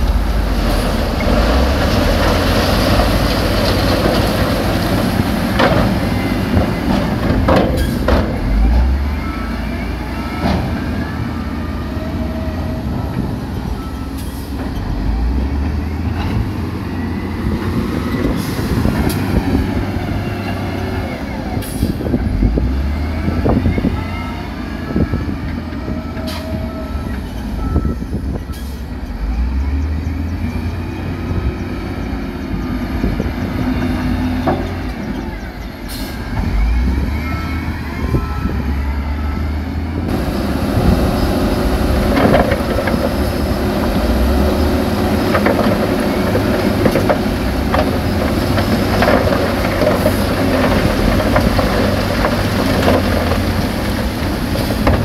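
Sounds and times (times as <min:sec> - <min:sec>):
noisy rushing rumble: 0:00.0 - 0:09.0, 0:38.5 - 0:55.0
diesel truck engines rumbling: 0:00.0 - 0:55.0.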